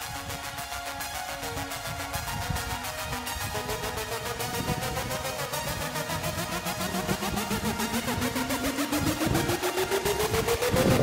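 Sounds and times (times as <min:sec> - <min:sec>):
electronic music with synth: 0:00.0 - 0:11.0.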